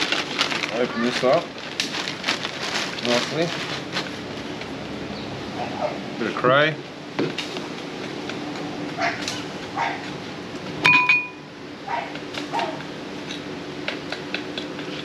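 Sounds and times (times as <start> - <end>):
steady low hum: 0.0 - 15.0
utensil clinking bowl: 10.8 - 11.4.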